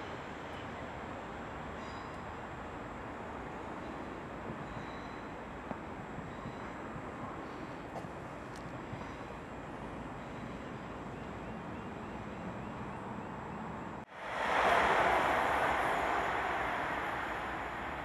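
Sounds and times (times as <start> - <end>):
railway rumble: 0.0 - 18.0
diesel train running: 14.1 - 18.0.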